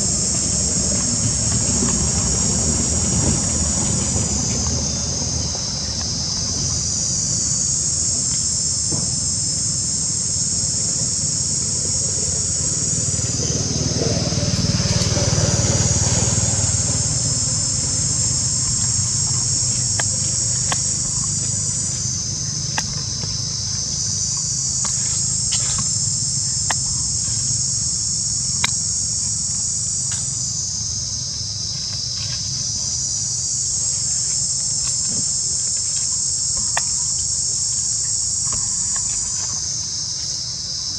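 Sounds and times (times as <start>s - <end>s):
high-pitched insect chorus: 0.0s - 40.9s.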